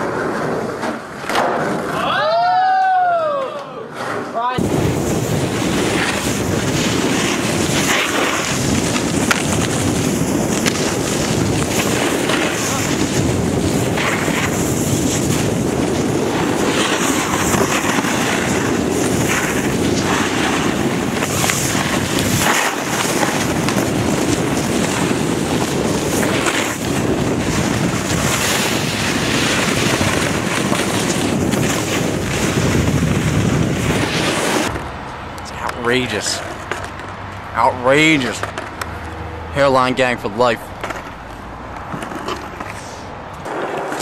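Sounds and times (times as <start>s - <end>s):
snowboard edges scraping snow: 0.0s - 0.8s, 3.9s - 34.8s
wind buffeting microphone: 4.6s - 36.2s.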